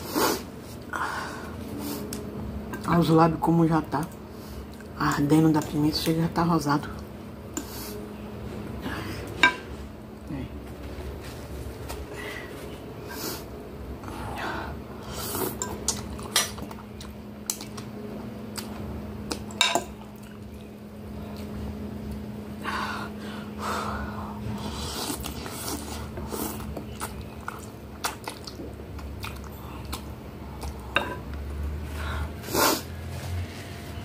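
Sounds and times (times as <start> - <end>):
chewing: 24.8 - 31.5.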